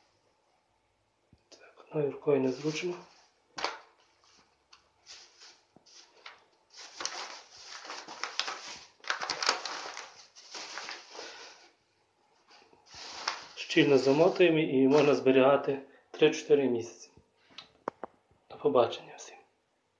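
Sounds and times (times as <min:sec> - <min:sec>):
plastic bag and paper rustling: 0:02.4 - 0:11.8, 0:12.4 - 0:15.4.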